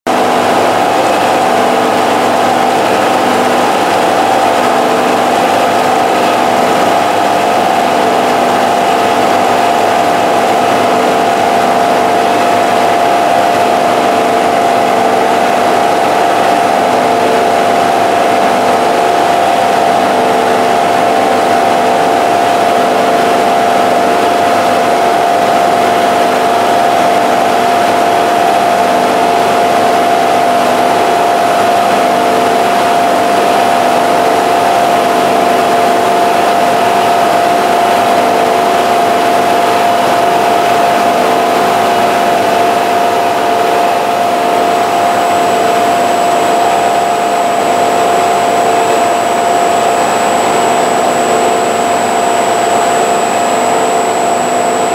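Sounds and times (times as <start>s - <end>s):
pump machine drone with whine: 0.1s - 54.9s.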